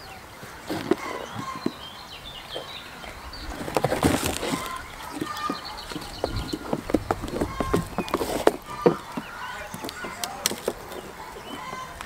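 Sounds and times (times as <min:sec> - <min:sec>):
small birds chirping: 0:00.0 - 0:12.0
goat hooves knocking on boards: 0:03.5 - 0:12.0.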